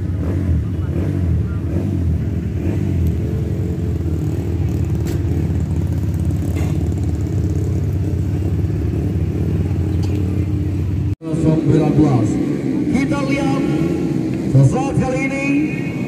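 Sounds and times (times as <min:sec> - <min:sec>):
motorcycle engine idling: 0:00.0 - 0:11.6.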